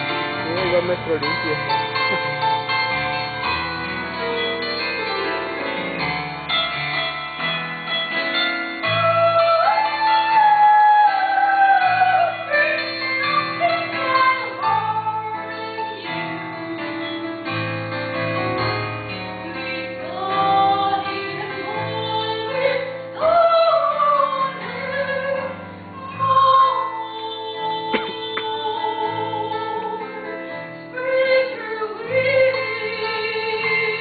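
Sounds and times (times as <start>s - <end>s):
piano accompaniment: 0.0s - 34.0s
woman singing opera: 8.8s - 17.3s, 19.4s - 34.0s.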